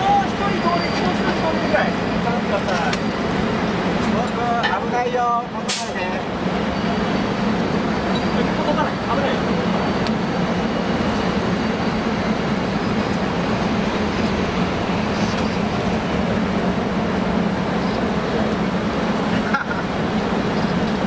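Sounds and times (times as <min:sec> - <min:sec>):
locomotive equipment humming: 0:00.0 - 0:21.0.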